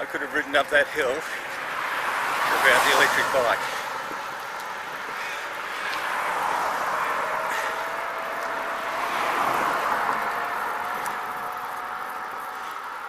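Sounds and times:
wind and tyre noise: 0.0 - 13.0.

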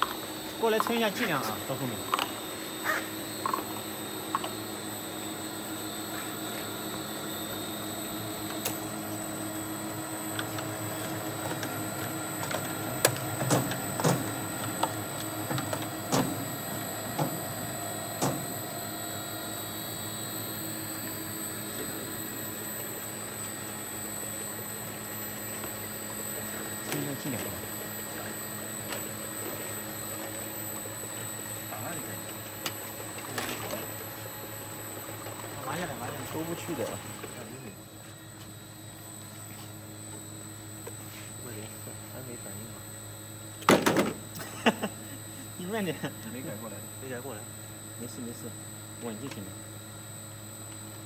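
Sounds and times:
machine hum with high whine: 0.0 - 51.0.

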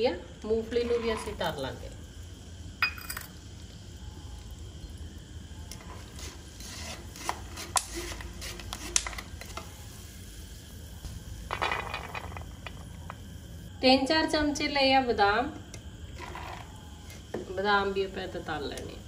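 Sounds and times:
faint oil sizzle: 0.0 - 19.0
peanuts clattering onto paper: 11.5 - 13.2.

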